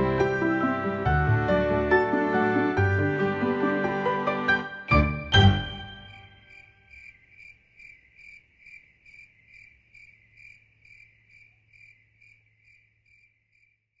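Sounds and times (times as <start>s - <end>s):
cricket chirping: 5.6s - 14.0s.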